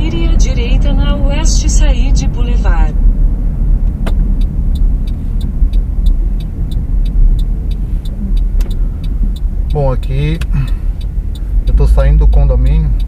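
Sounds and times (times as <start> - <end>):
car engine and road rumble: 0.0 - 13.0
turn signal ticking: 0.0 - 13.0
sharp click: 3.9 - 9.4.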